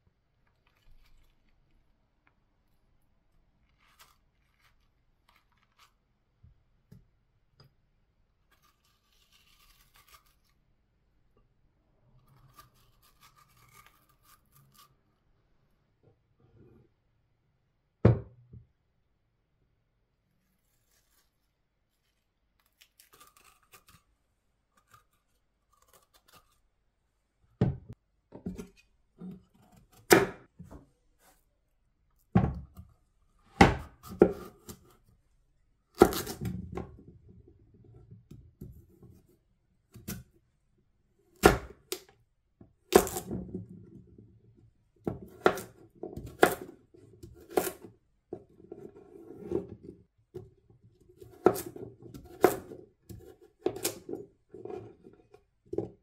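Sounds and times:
knife cutting pumpkin: 20.4 - 24.1, 28.4 - 31.5, 32.2 - 35.1, 35.9 - 37.0, 41.2 - 42.1, 42.9 - 43.5, 45.0 - 49.9, 51.1 - 56.0.

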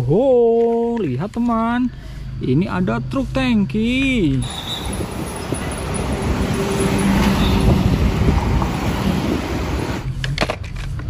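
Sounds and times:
motor vehicles driving past: 4.4 - 10.1.

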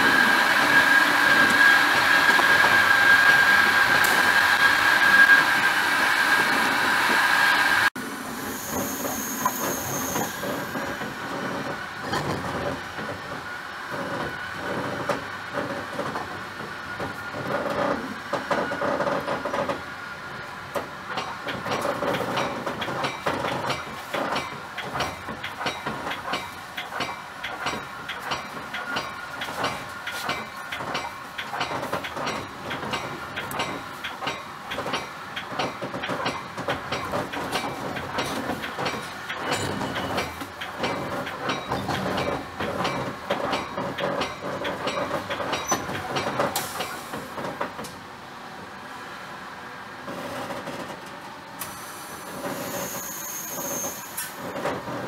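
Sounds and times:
train rumble from inside car: 8.6 - 48.1, 50.0 - 55.0
train wheels clicking over rail joints: 8.7 - 20.0, 20.6 - 48.0, 50.0 - 55.0.

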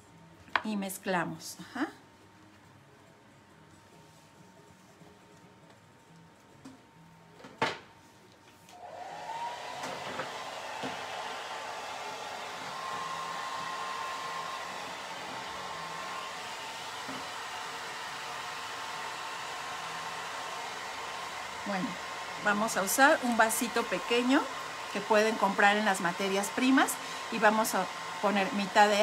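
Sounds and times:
hand dryer motor whine: 8.7 - 29.0.

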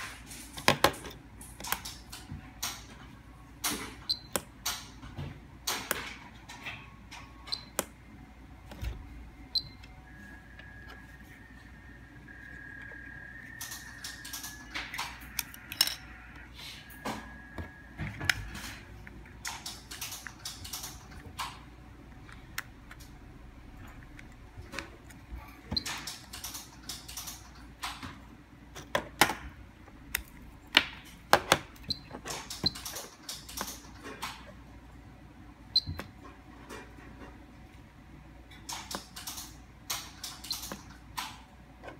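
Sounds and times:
steady high tone: 9.2 - 18.1.

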